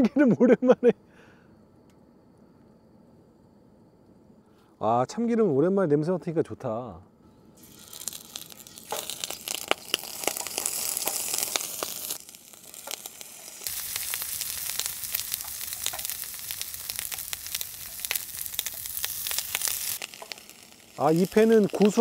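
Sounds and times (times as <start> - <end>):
food sizzling in a pan: 7.6 - 22.0.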